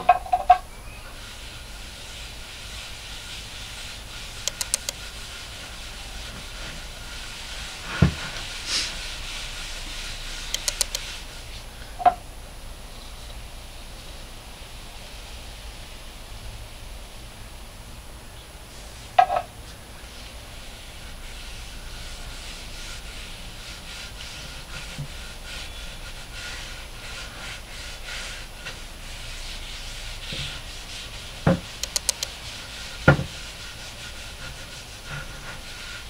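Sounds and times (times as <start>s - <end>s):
cloth rag wiping wood: 1.1s - 11.8s, 18.6s - 36.0s.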